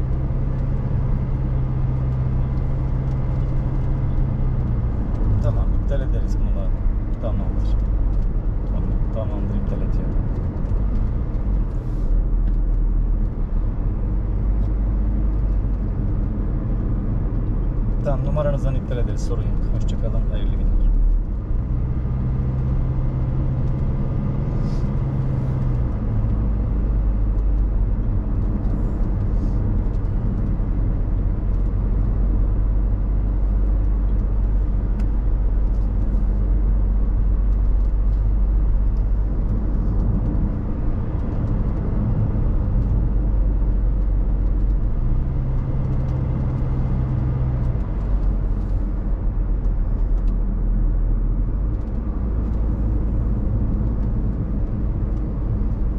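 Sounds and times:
car engine and road rumble: 0.0 - 55.9.

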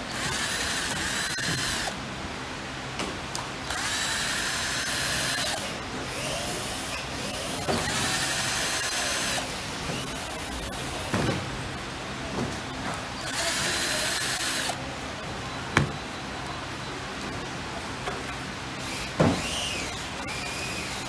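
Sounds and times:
electric screwdriver whining: 0.1 - 2.0, 3.7 - 10.3, 13.2 - 14.8.

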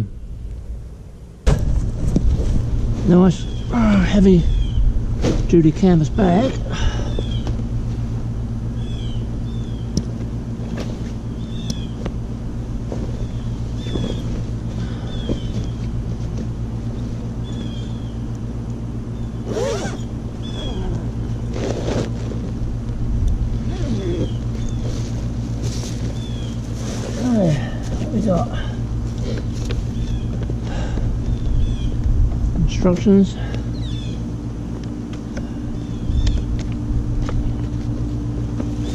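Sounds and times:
low machine hum: 0.0 - 38.9
bird chirping: 4.4 - 4.9
fabric rustling and scraping: 21.4 - 22.7, 23.7 - 28.2.

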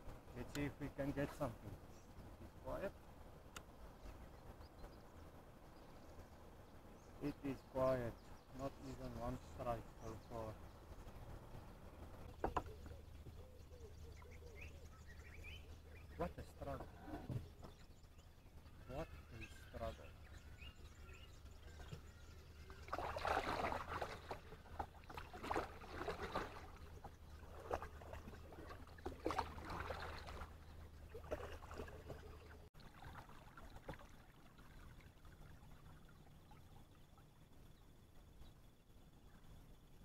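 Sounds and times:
kayak paddle splashing water: 22.8 - 36.0.

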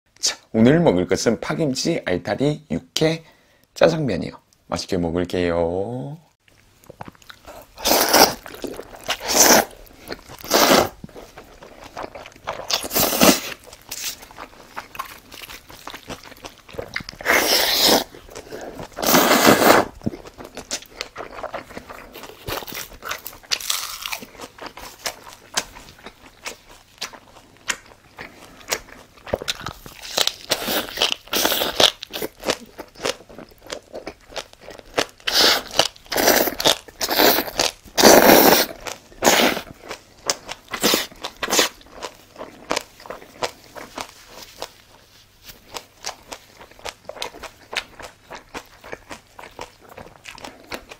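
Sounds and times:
noodles slurped: 7.0 - 11.5, 16.4 - 20.0, 34.8 - 39.8.

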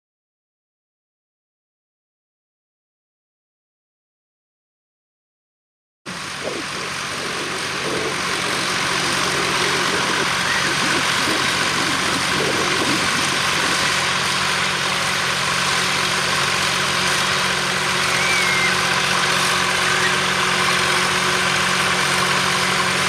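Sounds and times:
tractor engines running: 6.1 - 23.0.

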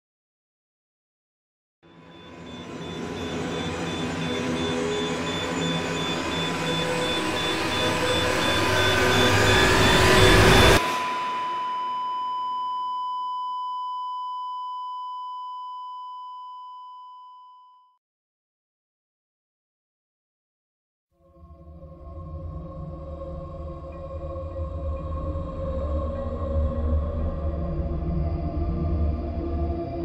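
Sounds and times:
electronic swell: 1.9 - 12.4
high electronic beep tone: 2.0 - 17.9.

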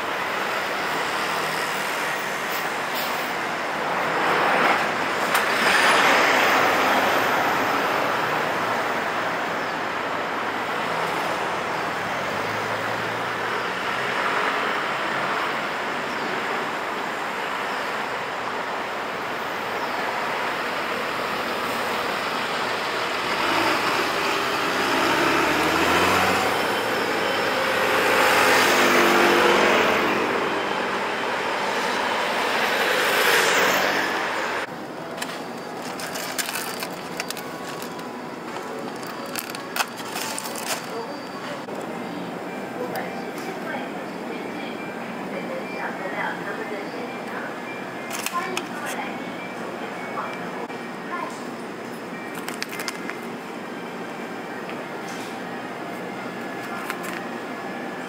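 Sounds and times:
cars and scooters passing: 0.0 - 43.2
bus driving past: 0.0 - 45.3, 45.9 - 58.0.

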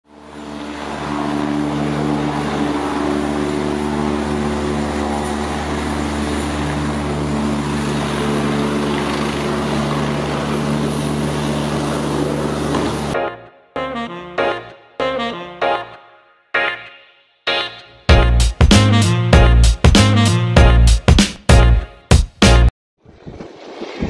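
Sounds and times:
helicopter rotor and turbine: 0.1 - 13.2.

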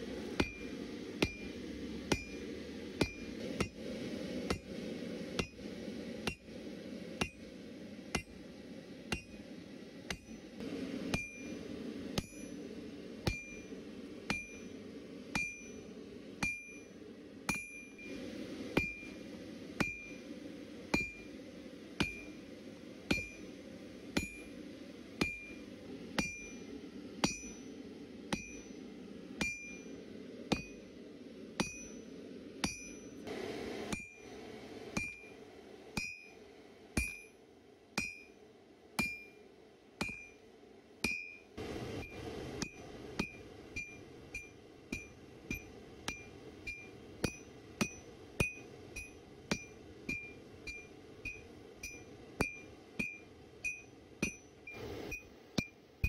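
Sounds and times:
hammer striking anvil: 3.0 - 3.8, 9.1 - 9.4, 11.1 - 11.5, 12.2 - 12.6, 13.2 - 13.7, 14.3 - 14.7, 15.4 - 15.8, 27.2 - 27.6, 28.3 - 28.8, 29.4 - 29.9, 30.5 - 30.8, 31.6 - 32.0, 32.6 - 33.2, 35.0 - 35.3, 36.0 - 36.4, 37.0 - 37.4, 38.0 - 38.4, 40.0 - 40.4, 41.0 - 41.4, 42.0 - 54.5.

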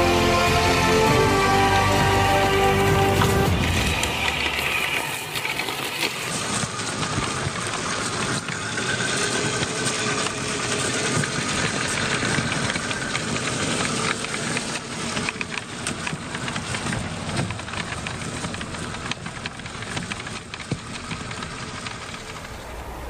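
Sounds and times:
electric motor whirring: 0.0 - 15.7
tyres crunching in snow: 0.0 - 23.0.

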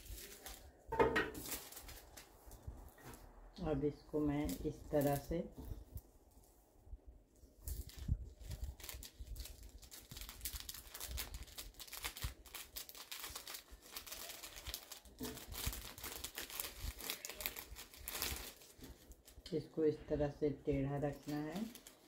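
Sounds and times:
cellophane crinkling: 0.0 - 3.3, 7.4 - 19.5, 21.0 - 22.0.

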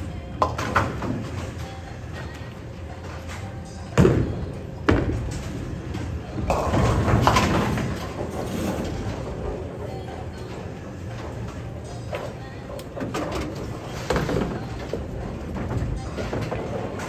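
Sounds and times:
bowling pins clattering: 0.0 - 17.0
bowling balls thudding on lane: 3.9 - 9.6.

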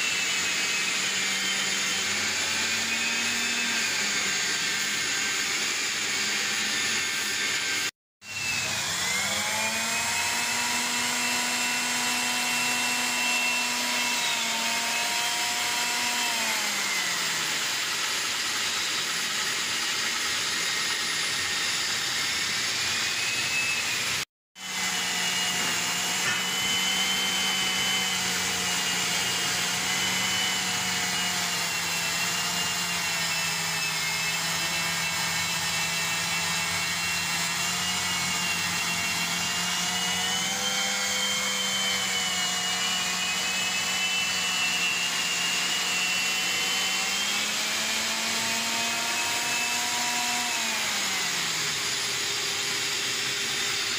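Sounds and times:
drill cutting steel: 0.0 - 53.9
drill motor whine: 0.0 - 53.9.

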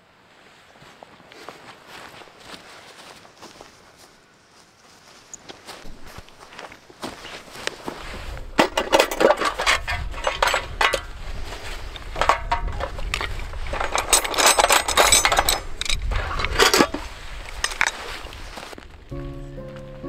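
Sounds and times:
steel tent pegs clinking and rattling: 5.9 - 18.7.

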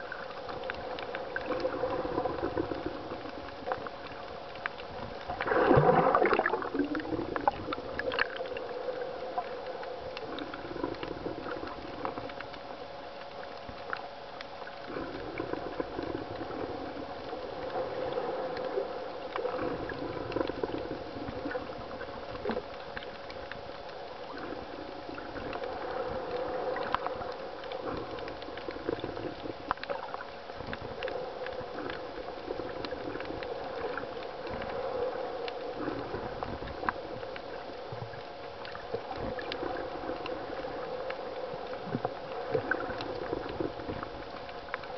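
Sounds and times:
underwater clicks: 0.0 - 44.9
water surging underwater: 0.0 - 44.9
water rushing burst: 5.4 - 8.8.

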